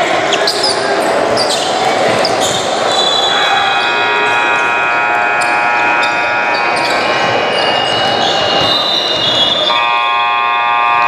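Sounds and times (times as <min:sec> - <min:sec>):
sneaker squeaks: 0:00.0 - 0:04.6, 0:05.3 - 0:09.8
crowd chatter: 0:00.0 - 0:11.0
scoreboard buzzer: 0:03.4 - 0:07.8, 0:09.6 - 0:11.0.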